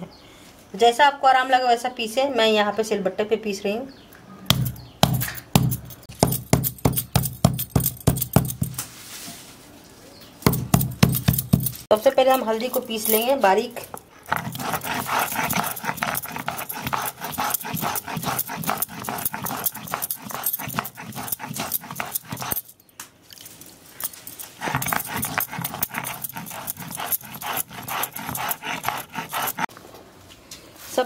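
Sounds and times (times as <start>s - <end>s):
stone scraping on grinding slab: 13.9s - 22.7s, 24.4s - 29.7s.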